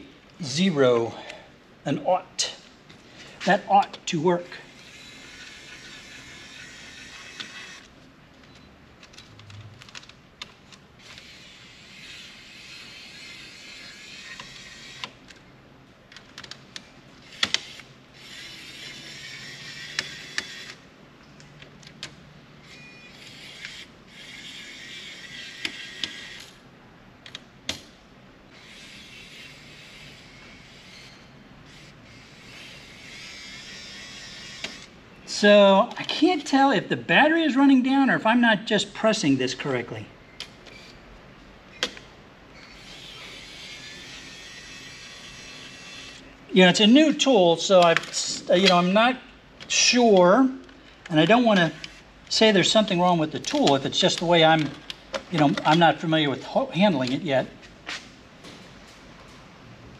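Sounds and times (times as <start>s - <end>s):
electric screwdriver motor running: 4.8s - 7.9s.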